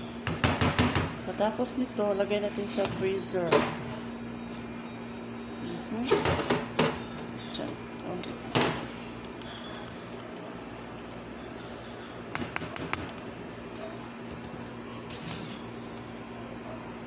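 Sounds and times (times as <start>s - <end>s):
faint steady hum: 0.0s - 17.0s
metal spoon scraping mesh strainer: 15.1s - 15.6s.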